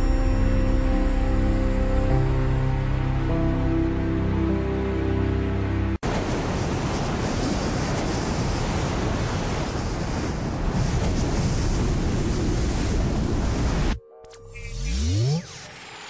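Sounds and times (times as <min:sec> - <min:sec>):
ocean surf rushing: 0:06.0 - 0:14.0
faint electronic tones: 0:14.0 - 0:16.0.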